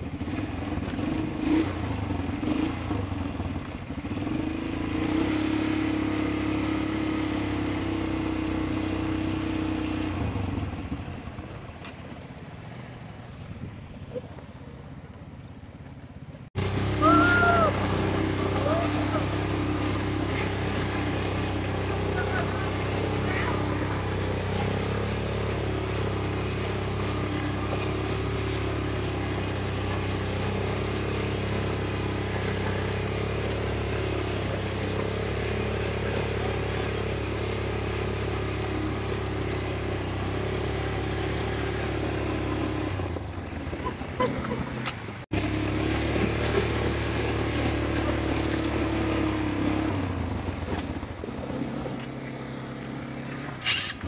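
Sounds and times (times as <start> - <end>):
atv engines running: 0.0 - 54.0.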